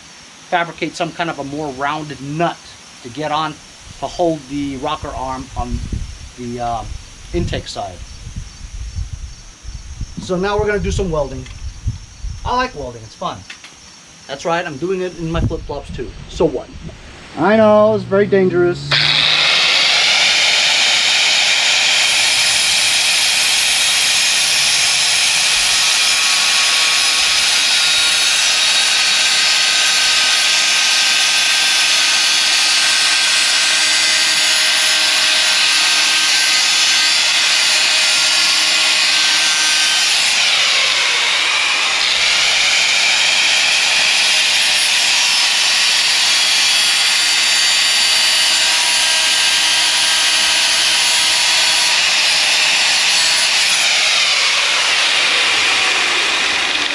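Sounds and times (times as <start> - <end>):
angle grinder cutting metal: 17.4 - 56.9.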